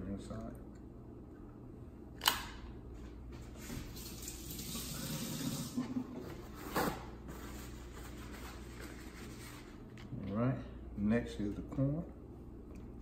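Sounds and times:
sink tap running: 4.0 - 5.8.

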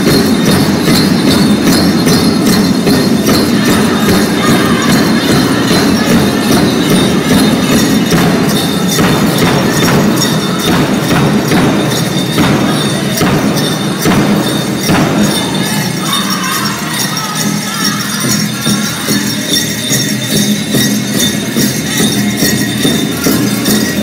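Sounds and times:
bells jingling: 0.0 - 24.0
drum group singing: 0.0 - 24.0
pounding big drum beat: 0.0 - 24.0.

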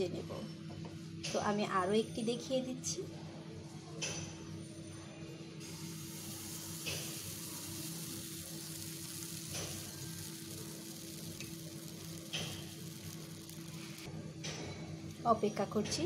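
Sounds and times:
batter sizzling in a pan: 5.6 - 14.1.

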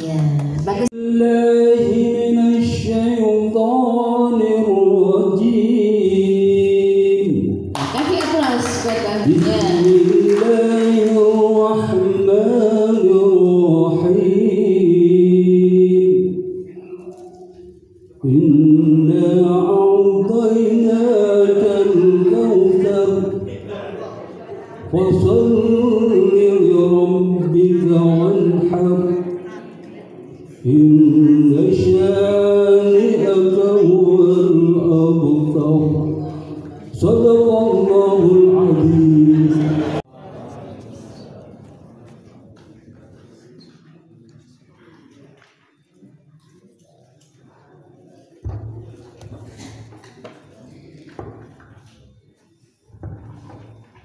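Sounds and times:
man chanting into a microphone: 0.6 - 7.8, 9.2 - 29.8, 30.4 - 40.0.

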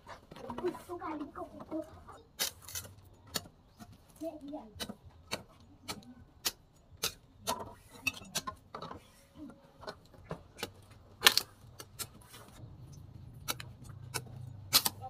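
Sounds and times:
sugarcane stalks snapping: 2.4 - 3.5, 4.8 - 8.4, 10.6 - 12.2, 13.4 - 15.0.

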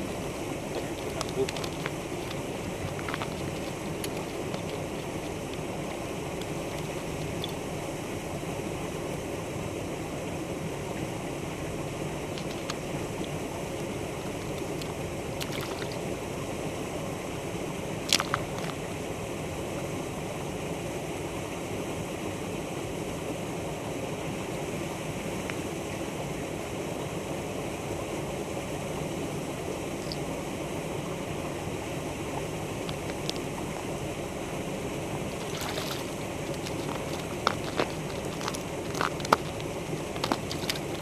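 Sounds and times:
rushing background noise: 0.0 - 8.6, 31.3 - 41.0.

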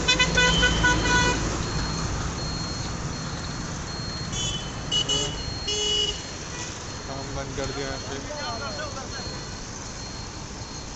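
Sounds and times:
horn honks: 0.0 - 1.4, 4.3 - 6.8
road traffic: 0.0 - 10.9
faint high beep: 1.6 - 10.9.

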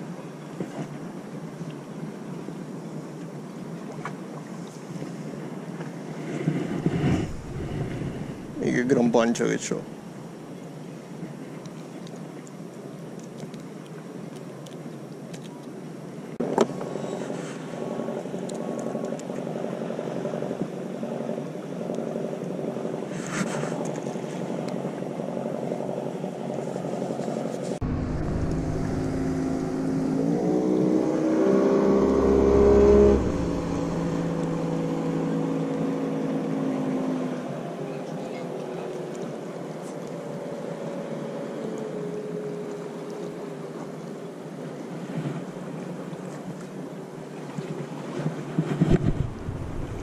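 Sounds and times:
engine running: 6.7 - 8.8, 27.8 - 37.4, 48.9 - 50.0.

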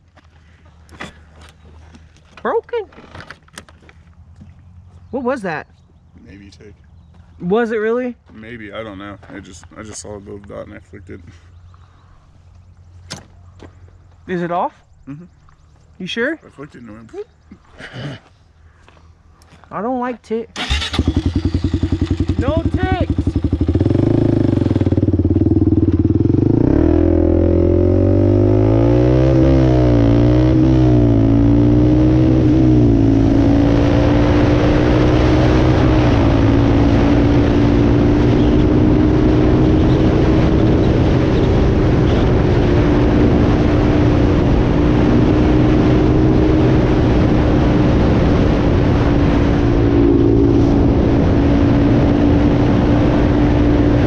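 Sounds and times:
wind and road noise: 0.0 - 54.0
atv engine revving through gears: 20.6 - 48.5.

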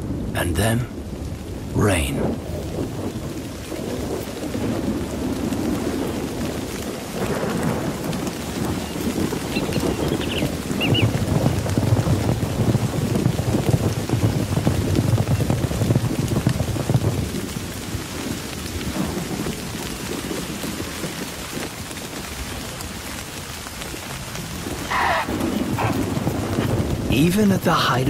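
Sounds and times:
heavy rain falling: 0.0 - 28.0
thunder rumbling: 0.0 - 28.0
high-pitched animal call: 24.9 - 25.9.

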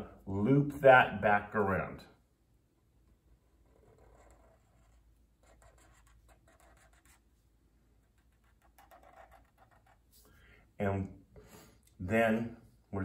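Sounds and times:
marker scratching on paper: 3.3 - 7.4, 8.0 - 10.3.

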